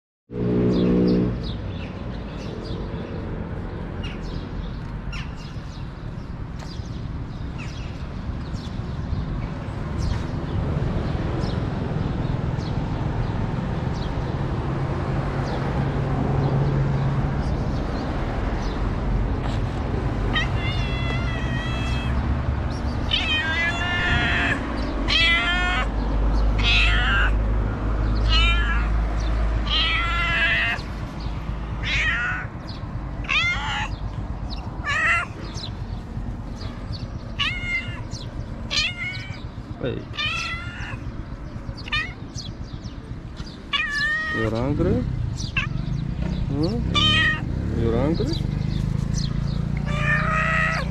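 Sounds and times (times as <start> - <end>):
cat meowing: 20.3 - 27.4, 28.2 - 30.9, 31.8 - 34.0, 34.8 - 35.6, 37.3 - 42.6, 43.7 - 44.5, 45.4 - 45.9, 46.9 - 47.5, 49.8 - 50.9.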